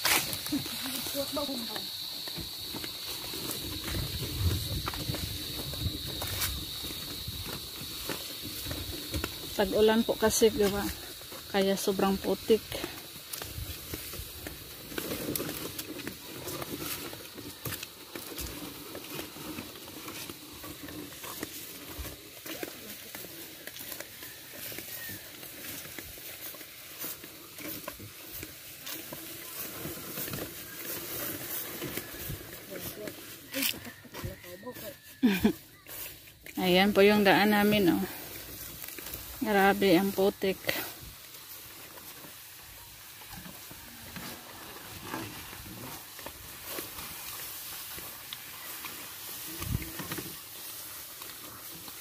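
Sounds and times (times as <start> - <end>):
hooves squelching in mud: 0.0 - 52.0
sled runners scraping in mud: 0.0 - 52.0.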